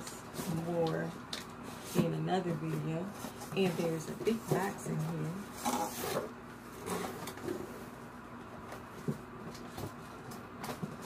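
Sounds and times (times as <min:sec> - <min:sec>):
cardboard scraping: 0:00.4 - 0:07.8.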